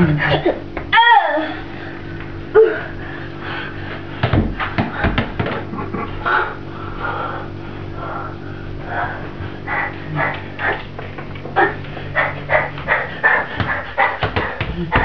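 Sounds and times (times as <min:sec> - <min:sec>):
steady low hum: 0:00.0 - 0:15.0
child vocal sound: 0:00.9 - 0:01.7, 0:02.5 - 0:02.9.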